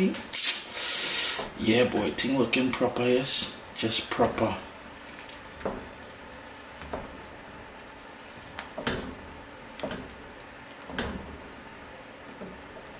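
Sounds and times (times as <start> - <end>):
wooden spoon stirring thick soup: 1.4 - 12.9.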